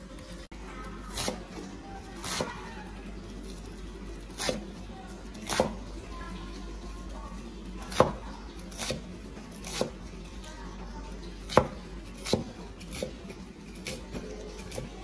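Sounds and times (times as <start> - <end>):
cleaver chopping greens on wood: 11.5 - 13.2.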